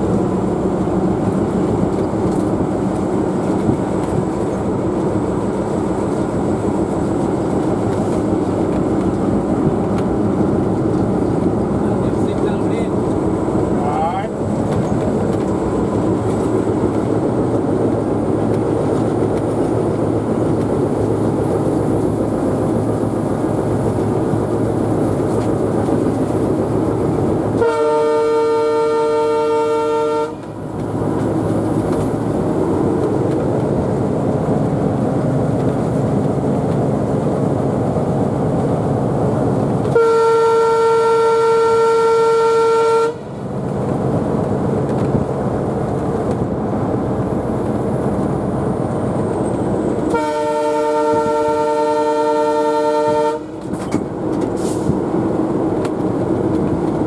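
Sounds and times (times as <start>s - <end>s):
diesel locomotive engine running: 0.0s - 57.0s
locomotive horn blasts: 27.6s - 30.6s, 39.8s - 43.4s, 50.0s - 53.7s.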